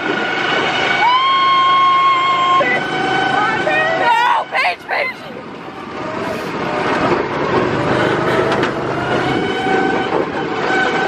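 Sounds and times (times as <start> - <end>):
go-kart engines running: 0.0 - 11.0
tyres rumbling over wooden planks: 5.3 - 11.0.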